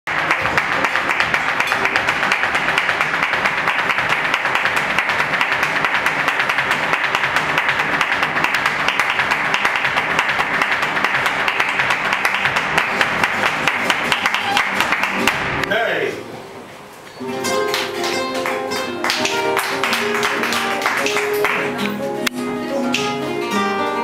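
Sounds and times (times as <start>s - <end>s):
acoustic guitars playing: 0.1s - 24.0s.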